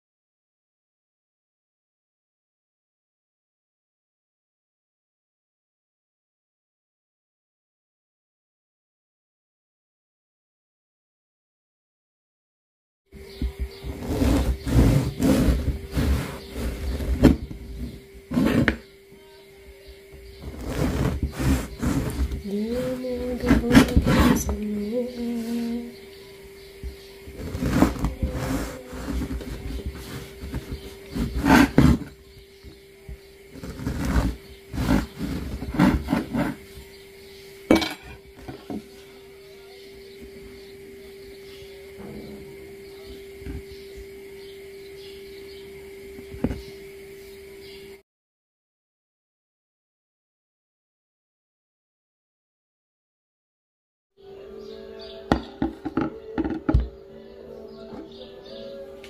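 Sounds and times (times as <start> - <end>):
faint steady hum: 13.1 - 48.0
bread knife sawing through loaf: 13.9 - 18.8, 20.4 - 24.6, 27.3 - 32.2, 33.5 - 36.6
knock on wooden board: 55.3 - 56.9.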